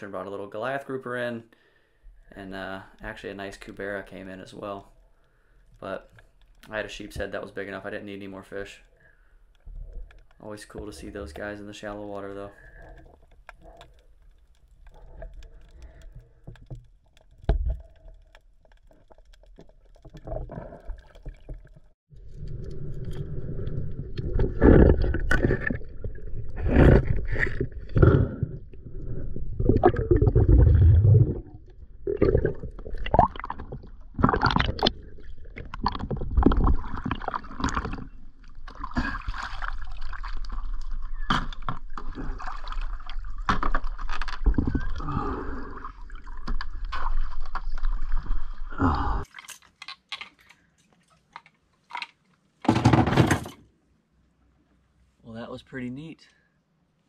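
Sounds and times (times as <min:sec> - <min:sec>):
water gurgling and sloshing: 0:05.7 - 0:51.9
handling knocks and bumps: 0:52.6 - 0:53.6.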